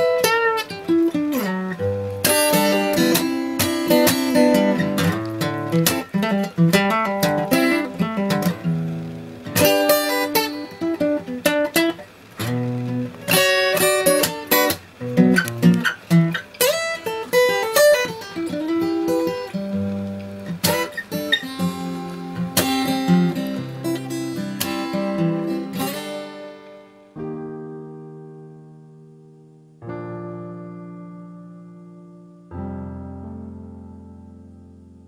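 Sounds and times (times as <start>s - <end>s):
acoustic guitar music: 0.0s - 35.0s.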